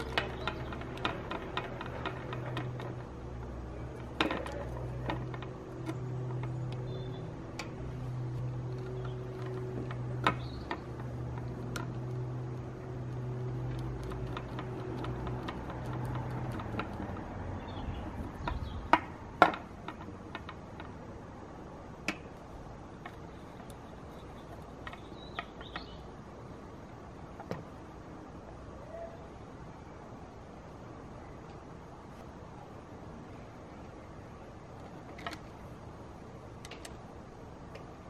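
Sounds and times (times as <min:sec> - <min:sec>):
plastic parts clicking and clacking: 0:00.0 - 0:06.9, 0:08.4 - 0:17.3
steady low hum: 0:00.0 - 0:38.0.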